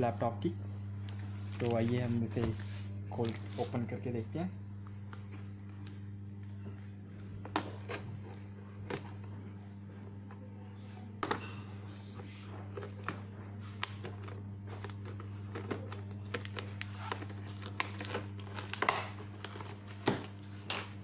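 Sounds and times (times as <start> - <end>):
steady low hum: 0.0 - 21.0
packing tape tearing: 13.8 - 21.0.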